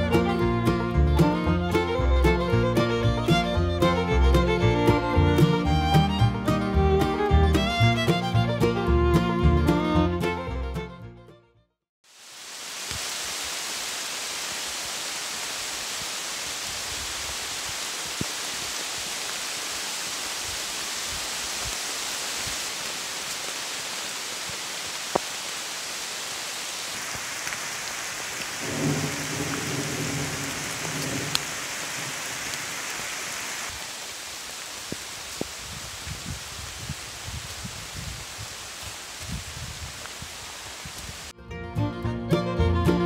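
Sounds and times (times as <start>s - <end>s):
rain falling on leaves: 0.0s - 4.6s, 12.0s - 41.3s.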